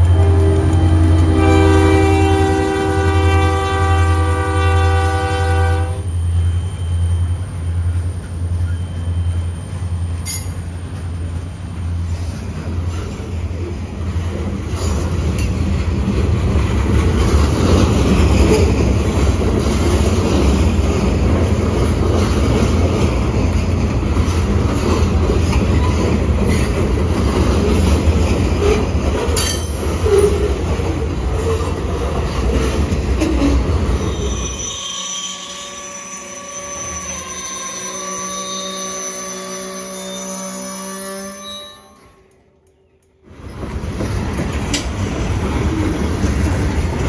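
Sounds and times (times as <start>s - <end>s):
steel wheels rumbling on rail: 0.0s - 42.5s, 43.2s - 47.0s
wheel squeals: 6.1s - 10.6s, 33.2s - 42.2s.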